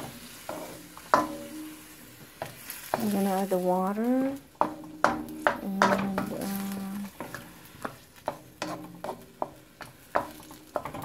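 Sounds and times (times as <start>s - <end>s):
food sizzling faintly: 0.0s - 11.0s
spatula knocking against metal wok: 0.5s - 1.8s, 4.6s - 6.4s, 7.2s - 11.0s.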